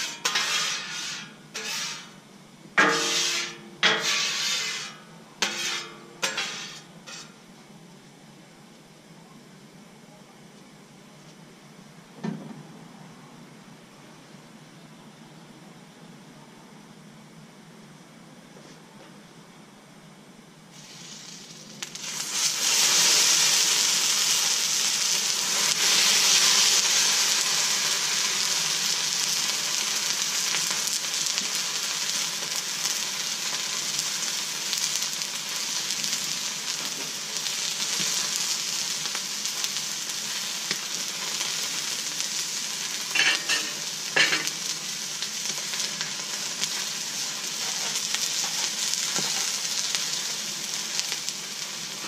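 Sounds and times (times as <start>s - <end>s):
chicken sizzling on a griddle: 0.0s - 7.4s, 20.7s - 52.0s.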